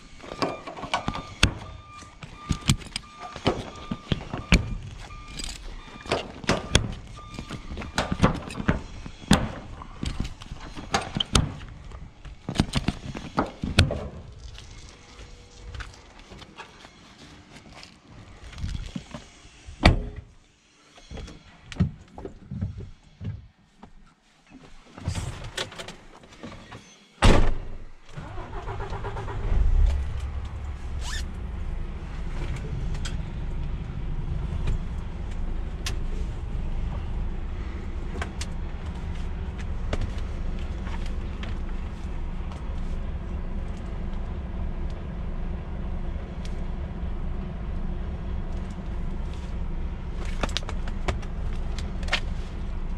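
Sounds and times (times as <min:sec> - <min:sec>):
knocks and clunks climbing in: 0:00.2 - 0:14.6
diesel engine starting and idling: 0:28.0 - 0:52.9.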